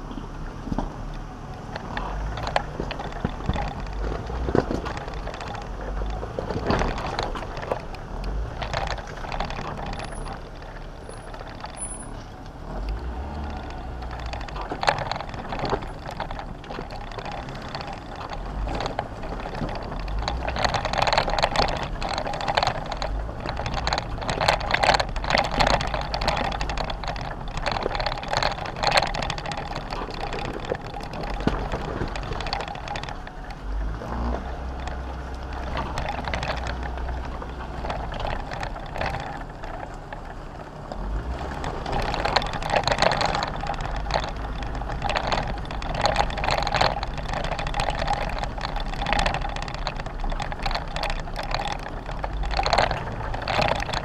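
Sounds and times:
low engine rumble: 0.0 - 54.0
vehicle knocks and rattles: 0.0 - 54.0.

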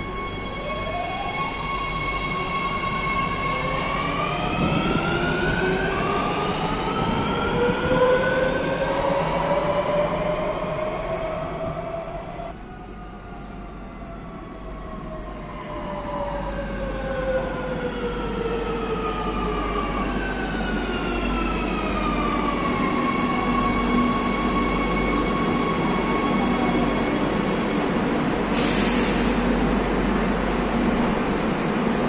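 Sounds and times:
sharp air hiss: 28.4 - 29.7.

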